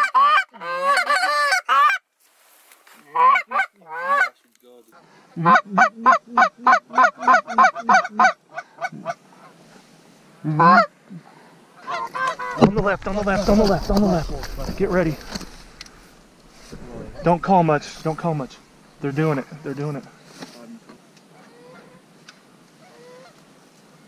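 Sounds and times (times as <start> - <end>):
goose clucking: 0.0 - 2.0, 3.2 - 4.4, 5.4 - 9.6, 10.5 - 11.0, 11.8 - 19.7, 22.8 - 23.4
goose honking: 0.0 - 2.0, 3.1 - 4.4, 5.4 - 9.6, 10.5 - 10.9, 11.8 - 18.6, 21.4 - 22.0, 22.8 - 23.4.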